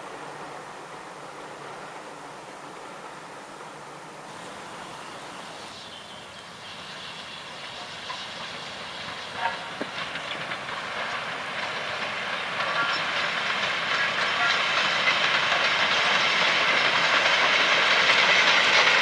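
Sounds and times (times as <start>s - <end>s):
steam locomotive running: 0.0s - 19.0s
train wheels on rails: 0.0s - 19.0s.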